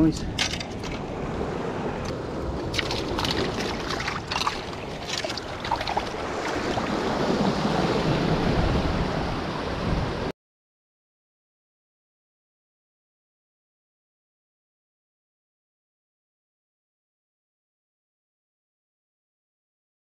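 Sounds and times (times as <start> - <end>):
surf washing against rocks: 0.0 - 10.3
wind buffeting microphone: 0.0 - 10.3
clicks and knocks: 0.4 - 1.0.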